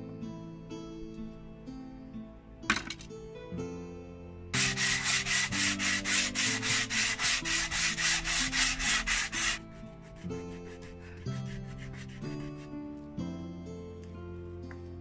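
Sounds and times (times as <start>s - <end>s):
soft background music: 0.0s - 15.0s
sandpaper rubbing on wood: 4.6s - 12.7s.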